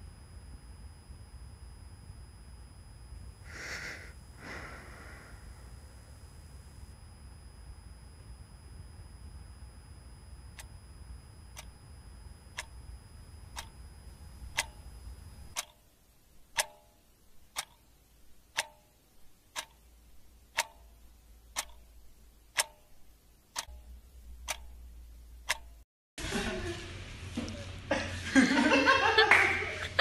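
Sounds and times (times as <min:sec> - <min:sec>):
low hum: 0:00.0 - 0:15.6
clock ticking: 0:12.5 - 0:15.9, 0:16.5 - 0:17.9, 0:18.5 - 0:25.8.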